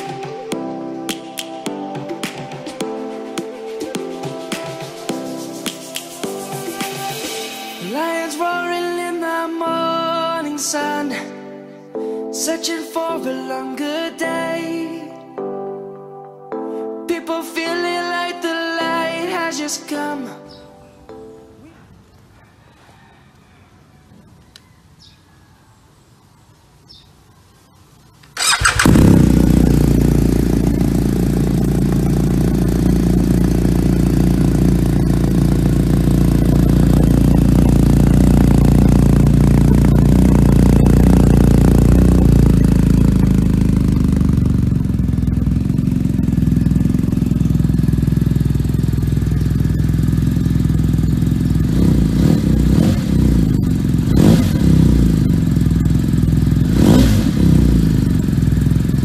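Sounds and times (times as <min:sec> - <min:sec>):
motorcycle throttle blips: 0:28.2 - 0:59.0
motorcycle engine idling: 0:28.4 - 0:59.0.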